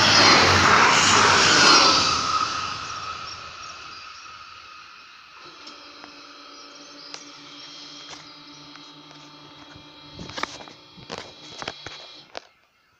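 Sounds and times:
barrier motor humming: 0.0 - 12.7
sharp clicks: 5.4 - 12.7.

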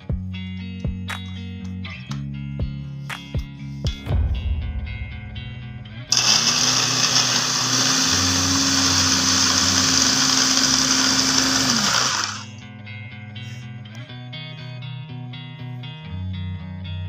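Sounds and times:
electric blender chopping onions: 6.1 - 12.6.

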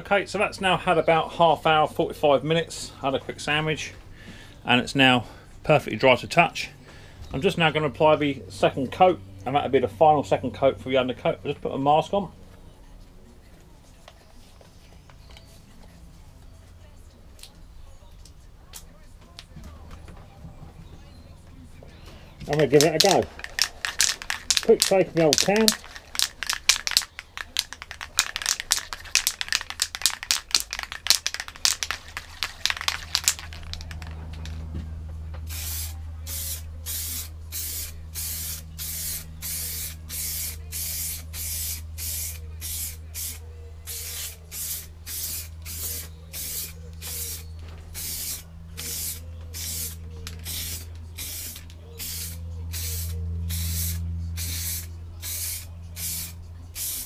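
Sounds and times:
aerosol can ball rattling: 22.5 - 34.6
spray can hissing: 22.5 - 34.6, 35.5 - 57.0
low hum: 46.1 - 55.2.

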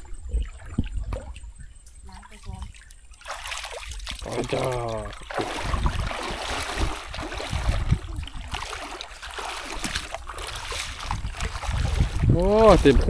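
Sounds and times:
stream water rushing: 3.2 - 13.0.

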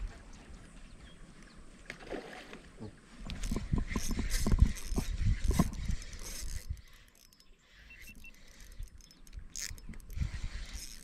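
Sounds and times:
spinning reel clicking: 3.4 - 11.0.

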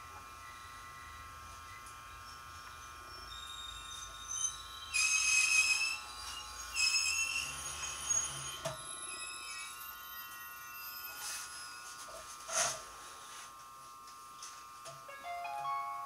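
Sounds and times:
train brakes squealing: 3.3 - 11.8.

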